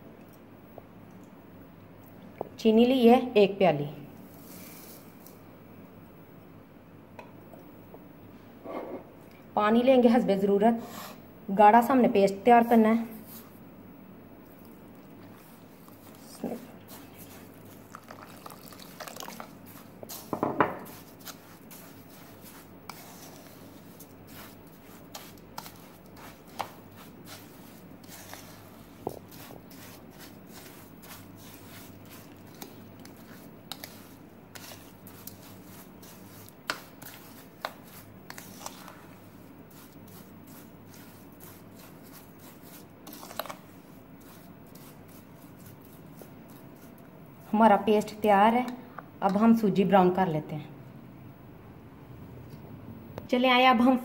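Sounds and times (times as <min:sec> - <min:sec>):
hand squishing wet paste: 0:14.5 - 0:47.0
water pouring: 0:17.7 - 0:19.5.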